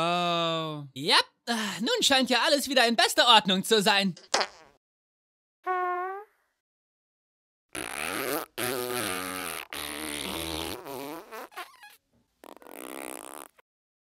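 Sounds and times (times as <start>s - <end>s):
cartoon fart sound effects: 4.3s - 4.8s, 5.6s - 6.5s, 7.7s - 13.7s.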